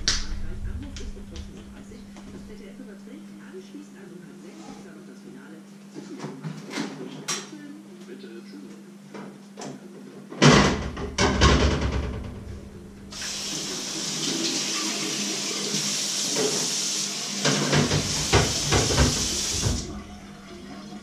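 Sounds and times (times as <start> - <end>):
knocks of things in a sink: 10.4 - 12.5, 17.4 - 20.0
tap water running into a sink: 13.1 - 21.0.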